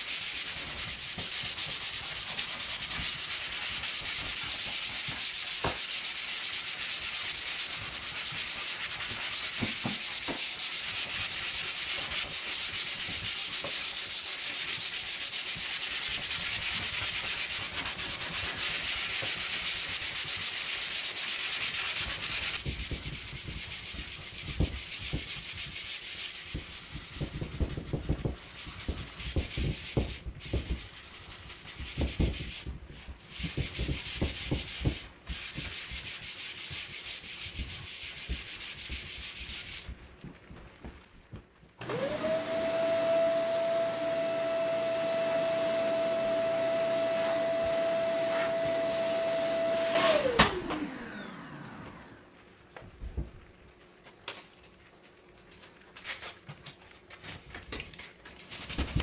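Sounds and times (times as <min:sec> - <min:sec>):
sandpaper scrubbing wood: 0:00.0 - 0:39.9, 0:45.0 - 0:51.0.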